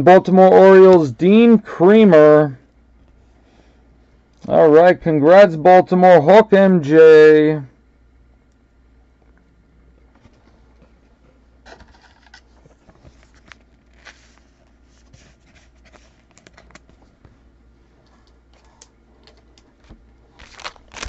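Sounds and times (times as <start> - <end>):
trading cards clicking and scraping: 11.6 - 17.0.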